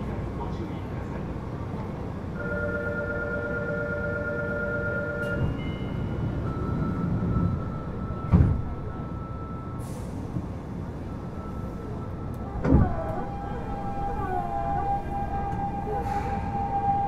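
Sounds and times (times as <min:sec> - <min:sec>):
subway car rumble with whining tones: 0:00.0 - 0:17.0.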